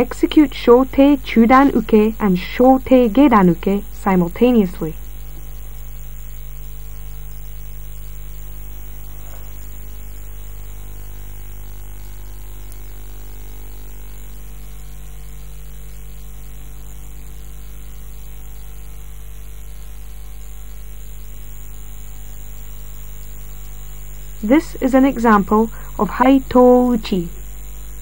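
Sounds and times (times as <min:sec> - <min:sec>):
low electrical hum: 0:00.0 - 0:28.0
even hiss: 0:23.4 - 0:28.0.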